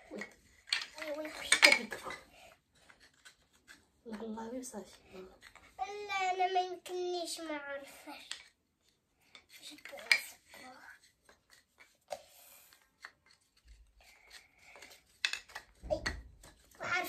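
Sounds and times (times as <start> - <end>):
wooden track pieces clicking: 0.1 - 2.2, 9.3 - 12.0, 12.7 - 16.8.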